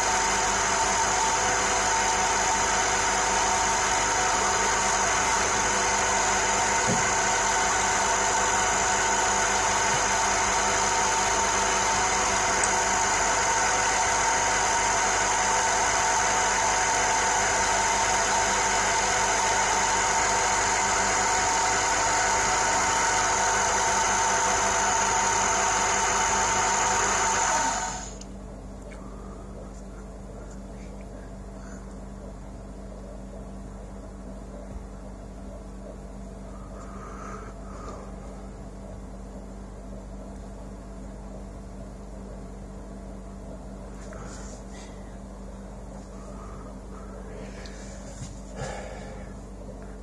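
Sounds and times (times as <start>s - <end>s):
metal lathe whining: 0.0s - 28.2s
low hum: 28.1s - 50.0s.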